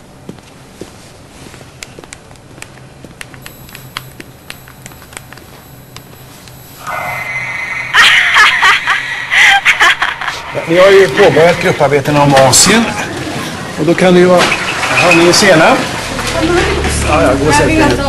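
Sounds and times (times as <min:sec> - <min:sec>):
steady tone: 0:03.4 - 0:13.8
wavering high-pitched sounds: 0:04.5 - 0:13.6.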